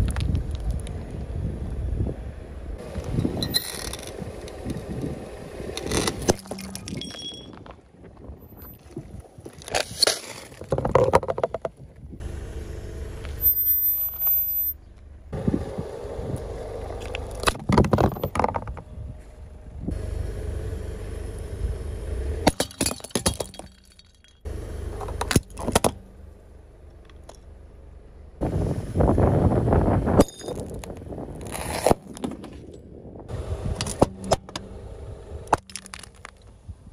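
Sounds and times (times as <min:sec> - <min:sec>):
car tyre rolling over asphalt: 0:00.0 - 0:36.9
objects cracking and crunching: 0:35.6 - 0:36.6.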